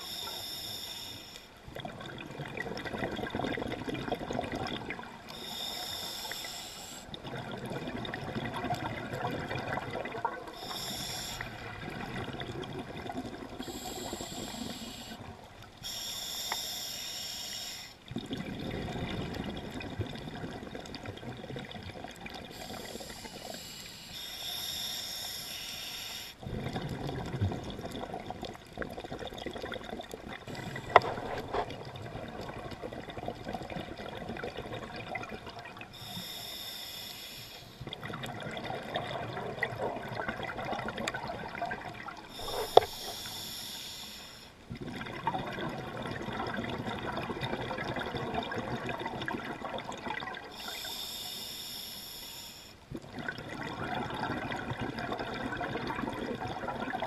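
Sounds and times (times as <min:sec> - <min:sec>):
regulator inhale hiss: 0:00.0 - 0:01.6, 0:05.3 - 0:07.2, 0:10.5 - 0:11.8, 0:13.6 - 0:18.0, 0:22.5 - 0:26.4, 0:35.9 - 0:37.9, 0:42.3 - 0:44.6, 0:50.5 - 0:52.8
exhaled bubbles gurgling: 0:01.6 - 0:16.0, 0:18.0 - 0:23.9, 0:26.4 - 0:36.6, 0:37.8 - 0:43.7, 0:44.6 - 0:51.2, 0:52.8 - 0:57.0.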